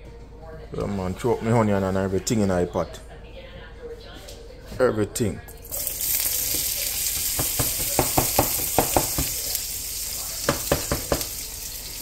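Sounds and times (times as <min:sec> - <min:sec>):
onion sizzling in hot oil: 0:05.6 - 0:12.0
cutting board knocking on pan: 0:07.2 - 0:09.4, 0:10.4 - 0:11.4.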